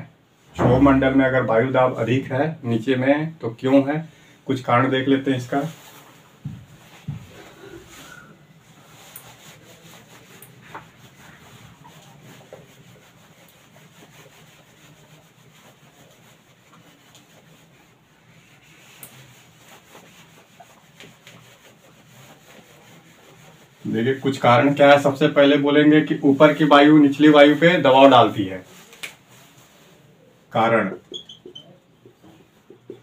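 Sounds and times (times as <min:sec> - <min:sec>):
duster rubbing on whiteboard: 0:05.4 - 0:30.1.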